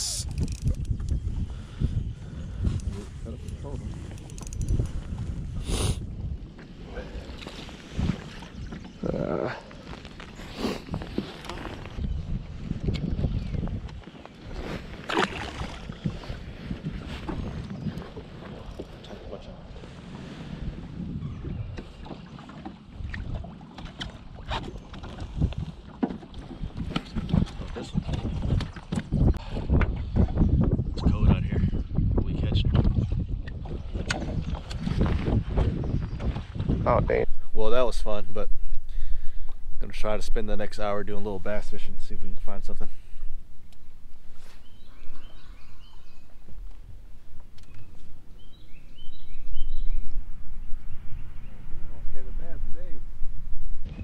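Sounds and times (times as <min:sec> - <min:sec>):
fishing reel clicks and knocks: 0:00.0 - 0:01.1, 0:03.5 - 0:04.9
wind buffeting microphone: 0:00.0 - 0:54.0
songbird chirping: 0:41.2 - 0:52.6.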